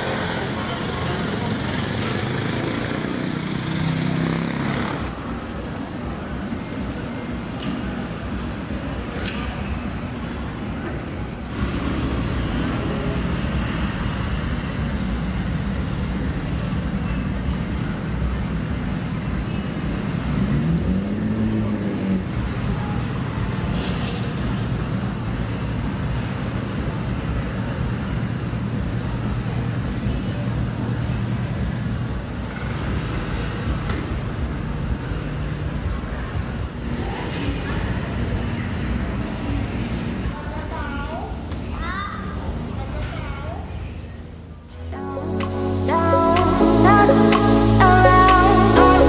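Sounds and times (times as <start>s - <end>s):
engine revving: 0.0s - 5.1s, 20.2s - 22.6s
vehicle engines running: 0.0s - 40.4s, 44.7s - 49.0s.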